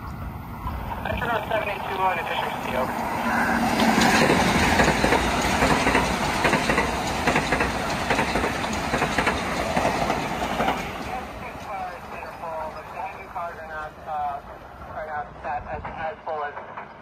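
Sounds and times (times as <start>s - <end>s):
rumble of wheels on rail: 0.0s - 17.0s
train wheels clacking over rail joints: 3.7s - 11.9s.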